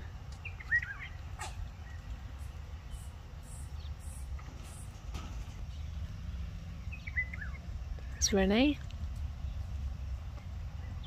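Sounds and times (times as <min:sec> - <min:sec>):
faint bird chirps: 0:00.4 - 0:01.2, 0:05.7 - 0:08.4.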